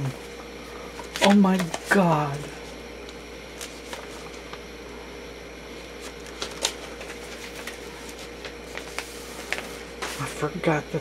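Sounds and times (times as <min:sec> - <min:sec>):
faint steady hum: 0:00.0 - 0:11.0
paper sleeve rustling: 0:00.9 - 0:02.8, 0:03.6 - 0:04.5, 0:05.8 - 0:10.6.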